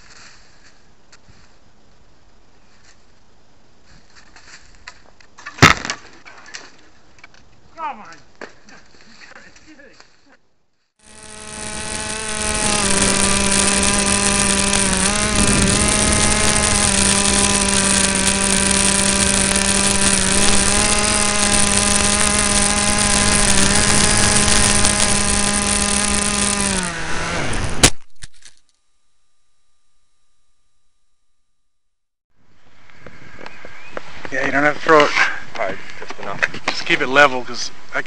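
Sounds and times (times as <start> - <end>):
model airplane motor buzzing: 11.0 - 28.0.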